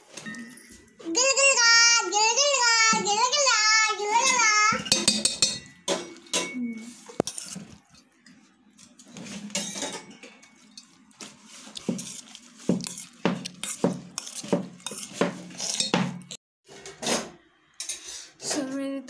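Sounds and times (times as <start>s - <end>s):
steel spoon scraping a pot: 4.2s - 16.4s.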